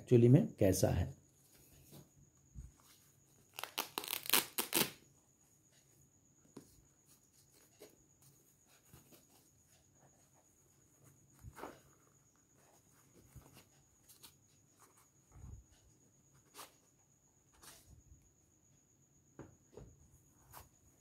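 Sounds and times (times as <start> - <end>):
cloth pouch rustling: 2.6 - 4.9, 7.4 - 15.7
velcro pulled open: 3.5 - 5.0.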